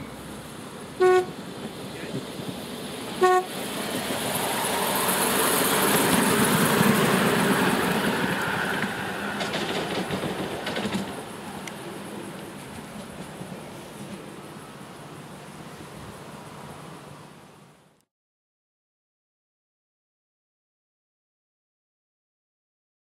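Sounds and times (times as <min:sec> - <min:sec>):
small train running on track: 0:00.0 - 0:18.0
small locomotive horn toots: 0:01.0 - 0:01.4, 0:03.2 - 0:03.6.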